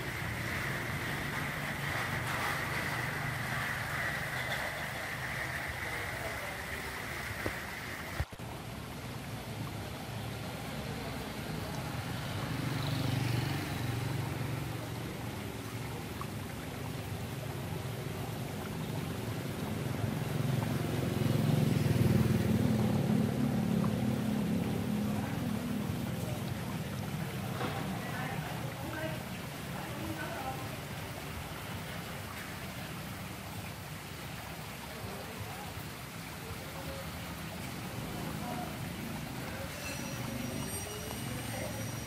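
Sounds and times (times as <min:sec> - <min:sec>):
passing traffic rumble: 0:00.0 - 0:35.3, 0:37.1 - 0:42.0.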